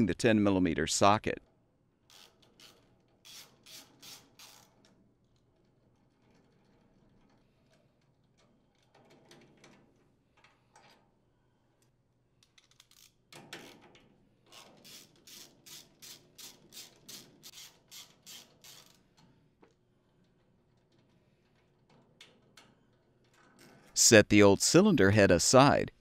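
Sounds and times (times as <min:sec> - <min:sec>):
ratchet clicking: 0:02.1 - 0:04.8, 0:12.4 - 0:13.8, 0:14.5 - 0:19.1.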